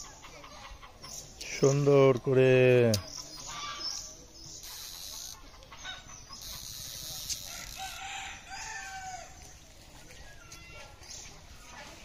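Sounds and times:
rooster crowing: 0:07.4 - 0:09.4.

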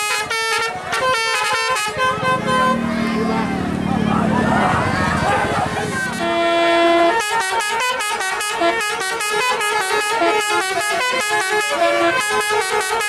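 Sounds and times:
musical air horn melody: 0:00.0 - 0:03.3, 0:06.0 - 0:13.0.

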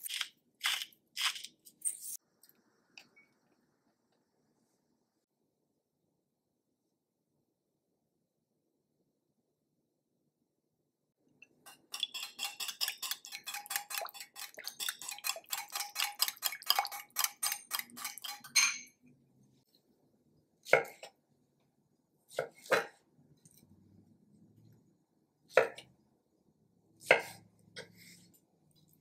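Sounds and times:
whisk rattling against glass bowl: 0:11.9 - 0:18.6.

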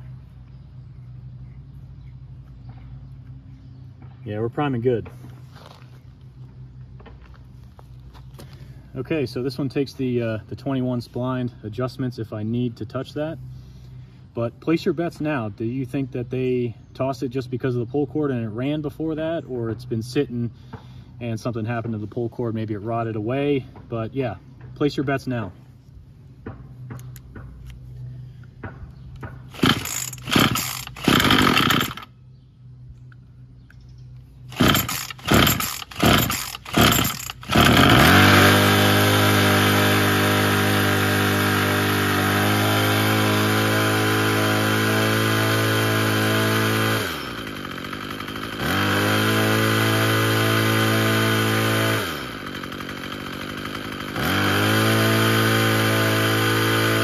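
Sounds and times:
string trimmer engine running: 0:26.8 - 0:32.4, 0:34.3 - 0:57.0
recoil starter pulls: 0:29.5 - 0:32.1, 0:34.5 - 0:57.0.

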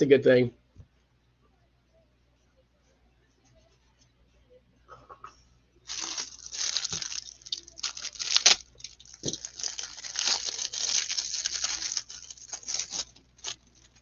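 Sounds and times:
foil wrapper crinkling and tearing: 0:05.9 - 0:14.0.

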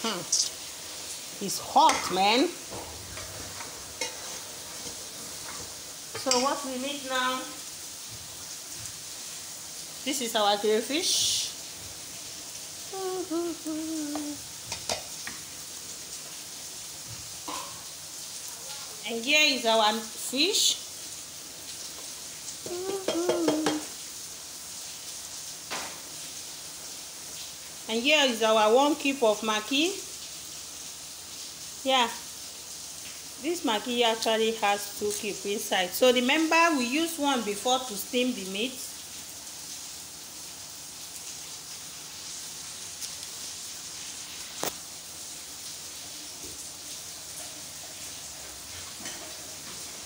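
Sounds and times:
soup sizzling in a pot: 0:00.0 - 0:50.0.

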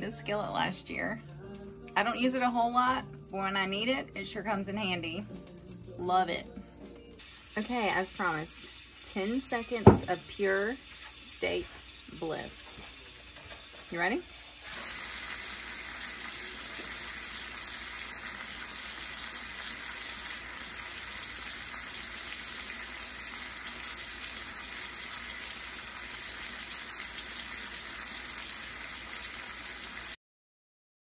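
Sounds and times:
steaks sizzling in a skillet: 0:06.8 - 0:30.2.

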